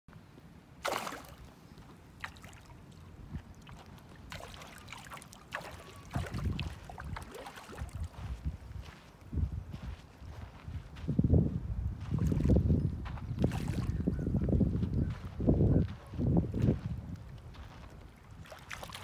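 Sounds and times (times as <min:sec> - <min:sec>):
fish splashing in water: 0:00.8 - 0:01.5, 0:02.2 - 0:08.1, 0:18.4 - 0:19.0
wind rumbling on microphone: 0:03.0 - 0:04.4, 0:05.9 - 0:19.0.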